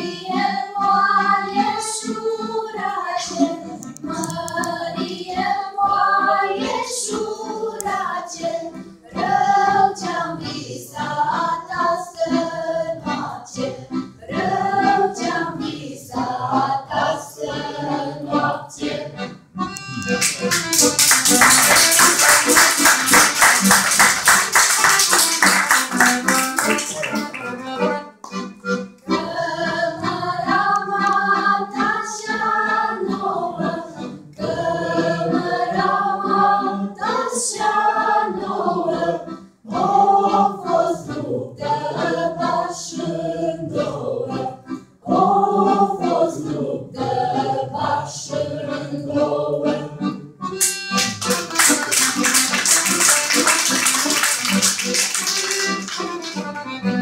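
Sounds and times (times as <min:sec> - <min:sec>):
girls singing unaccompanied: 0:00.0 - 0:19.3, 0:29.0 - 0:50.1
accordion music: 0:00.0 - 0:57.0
rhythmic hand clapping: 0:19.7 - 0:29.1, 0:50.5 - 0:57.0.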